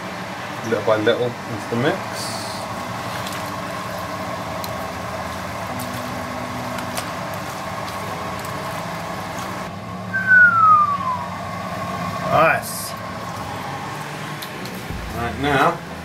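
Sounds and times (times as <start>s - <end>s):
steady mechanical hum: 0.0s - 16.0s
loud falling tone: 10.1s - 11.6s.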